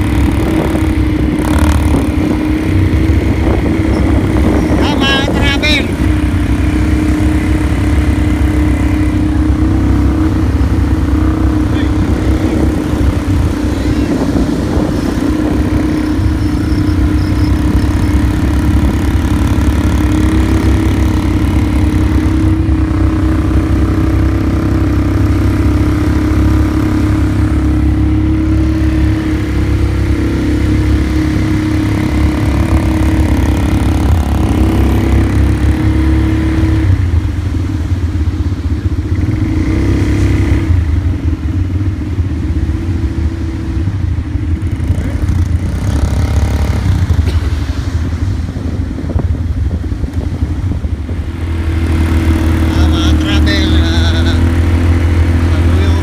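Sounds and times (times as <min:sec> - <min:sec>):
atv engine running: 0:00.0 - 0:56.0.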